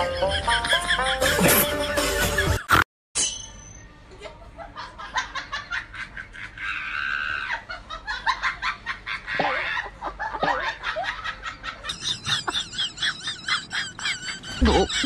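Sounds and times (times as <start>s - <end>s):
music: 0.0s - 2.8s
person laughing softly: 14.3s - 15.0s.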